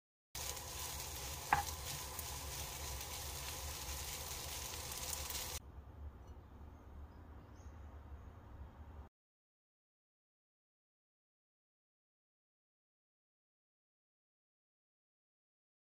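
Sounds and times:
rice sizzling in oiled pan: 0:00.4 - 0:05.6
wooden spatula stirring: 0:00.4 - 0:05.6.

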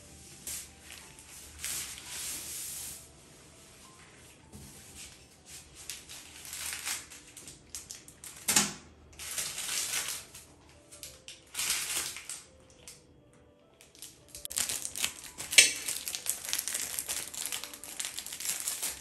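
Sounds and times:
packaging rustling and crinkling: 0:04.8 - 0:08.5, 0:09.2 - 0:13.0, 0:13.8 - 0:19.0
plastic bag of screws handled: 0:14.0 - 0:19.0.

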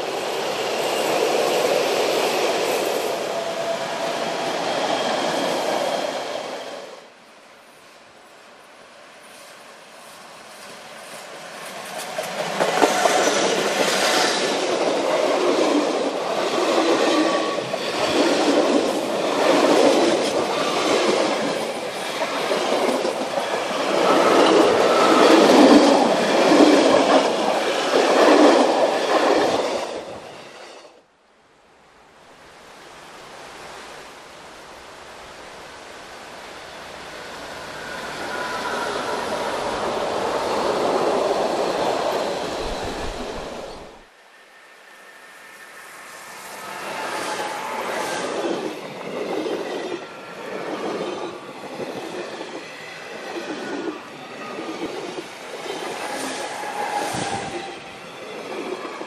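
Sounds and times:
distant train rumble: 0:09.8 - 0:30.9, 0:35.7 - 0:59.0.

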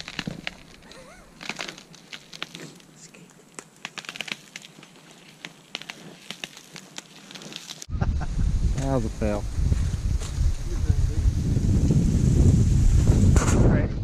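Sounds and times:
thin ice crackling under boots: 0:00.0 - 0:07.9.

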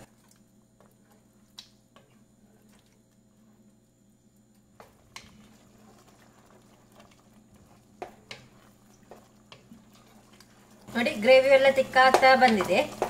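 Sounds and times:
stirring thick gravy in pot: 0:04.7 - 0:13.0
spatula tapping and scraping pot: 0:04.8 - 0:13.0.

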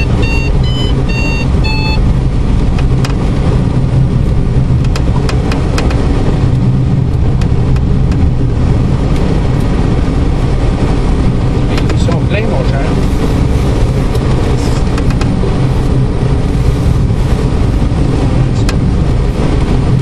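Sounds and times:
short high electronic beeps: 0:00.0 - 0:02.0
airflow rumble in cockpit: 0:00.0 - 0:20.0.

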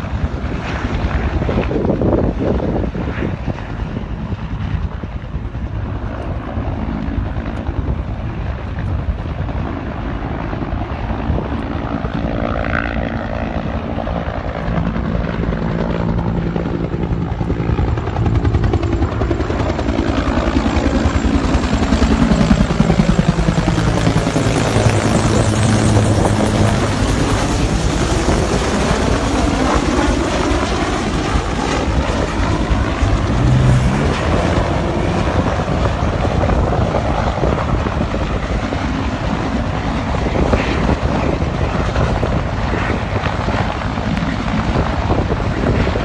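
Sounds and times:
helicopter engine drone: 0:00.0 - 0:46.0
helicopter rotor beating: 0:00.0 - 0:46.0.

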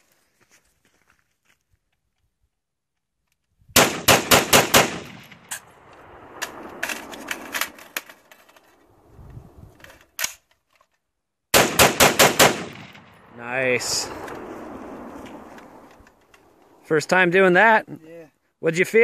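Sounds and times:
rifle firing rapid bursts: 0:03.8 - 0:05.2, 0:11.6 - 0:13.0.

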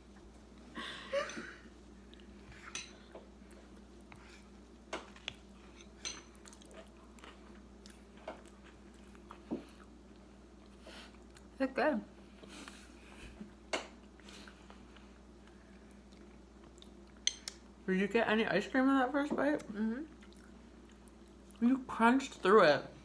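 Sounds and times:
person laughing: 0:00.8 - 0:01.7
soft chewing: 0:01.7 - 0:17.8, 0:19.5 - 0:21.7.

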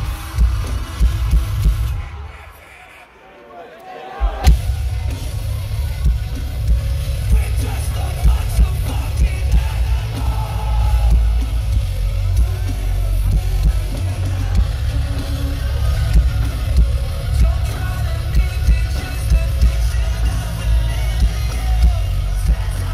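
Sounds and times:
metalcore band playing live: 0:00.0 - 0:02.6, 0:04.4 - 0:22.9
person singing: 0:07.2 - 0:22.9.

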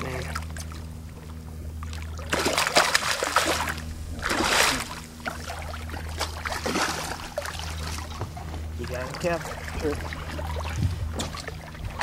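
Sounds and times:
low steady hum: 0:00.0 - 0:12.0
fish splashing in water: 0:01.8 - 0:08.5.

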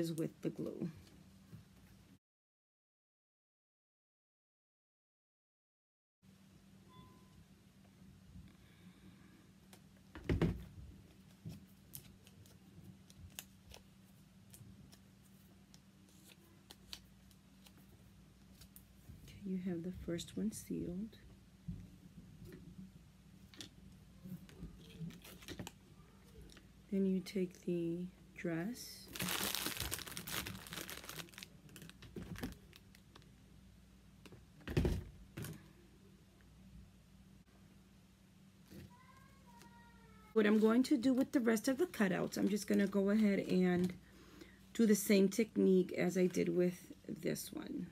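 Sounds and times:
faint low hum: 0:06.3 - 0:47.9
cardstock crinkling and rustling: 0:24.4 - 0:25.8, 0:29.1 - 0:33.3.

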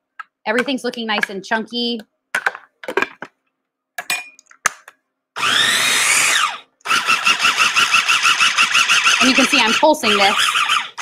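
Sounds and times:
food processor motor whirring: 0:05.4 - 0:11.0.

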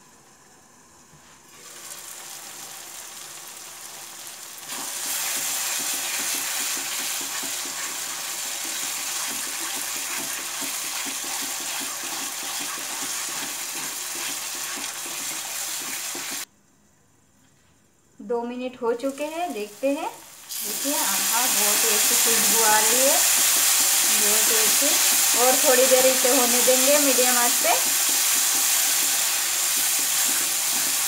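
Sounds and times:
gravy sizzling in a pan: 0:00.3 - 0:16.5, 0:19.0 - 0:31.0
spatula scraping a pan: 0:08.7 - 0:16.4, 0:22.0 - 0:27.2.

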